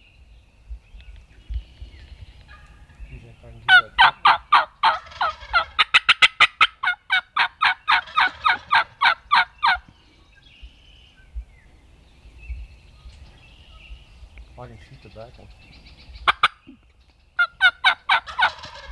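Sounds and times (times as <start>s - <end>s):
turkey yelps: 3.7s - 9.8s, 16.2s - 16.8s, 17.4s - 18.9s.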